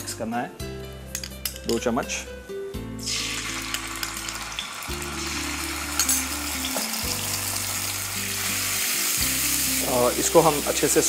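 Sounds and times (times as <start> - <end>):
soft background music: 0.0 - 11.0
paste sizzling in hot oil: 3.0 - 11.0.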